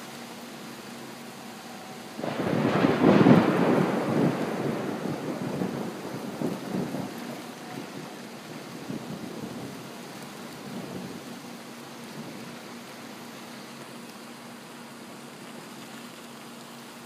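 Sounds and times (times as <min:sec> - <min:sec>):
heavy rain pouring: 0:00.0 - 0:17.0
low thunder rumble: 0:02.2 - 0:11.4.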